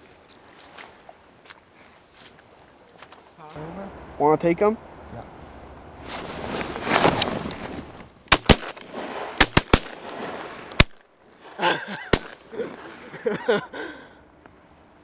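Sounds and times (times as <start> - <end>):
shotgun blasts: 8.3 - 12.9.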